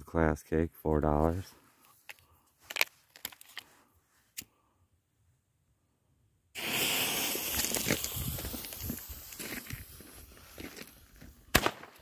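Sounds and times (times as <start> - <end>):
firework fuse spitting hiss: 6.5 - 11.2.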